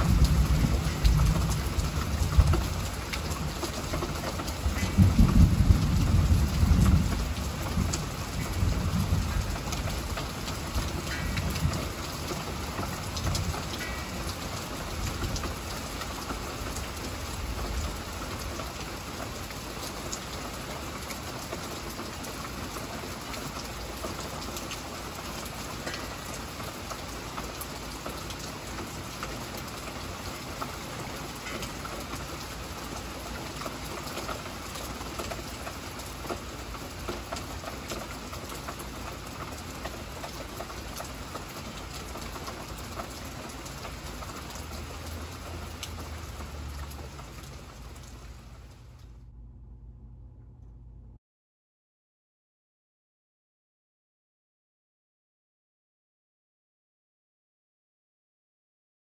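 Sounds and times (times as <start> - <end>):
low thunder rumble: 0.0 - 19.4
heavy rain falling: 0.0 - 49.2.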